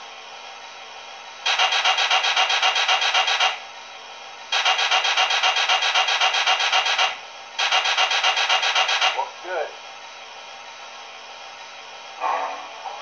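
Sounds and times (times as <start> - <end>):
model train rapid raspy pulses: 1.4 - 3.7, 4.5 - 9.3.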